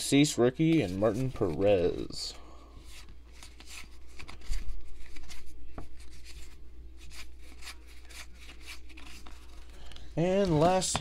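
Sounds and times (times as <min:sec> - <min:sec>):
cards sliding against each other: 0:02.8 - 0:11.0.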